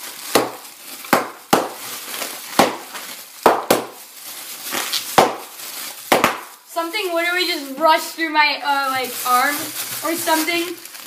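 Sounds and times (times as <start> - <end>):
bubble wrap popping: 0.0 - 11.0
plastic crinkling: 0.0 - 11.0.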